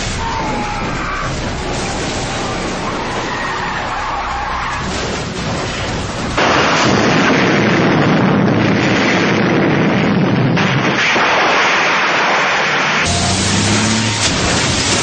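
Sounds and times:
car and road noise: 0.0 - 15.0
vehicle exploding: 4.7 - 15.0.

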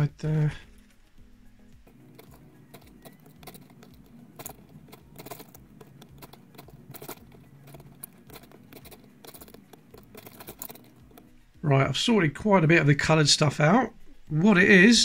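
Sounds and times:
puzzle pieces clicking and rustling: 2.1 - 11.4.

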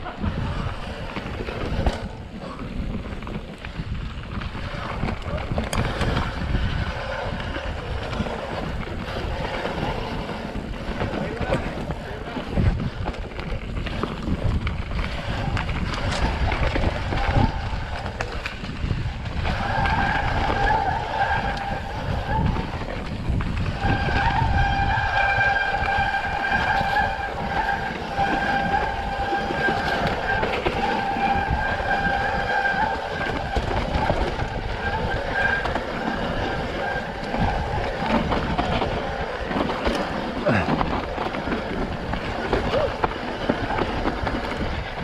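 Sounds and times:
bike tyre rush and rattle: 0.0 - 45.0
bike high-pitched squeal: 19.4 - 22.8, 23.7 - 33.8.

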